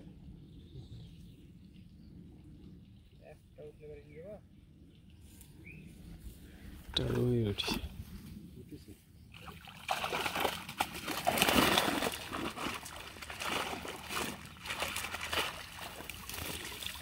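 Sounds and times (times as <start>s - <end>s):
water splashing off a net: 9.4s - 17.0s.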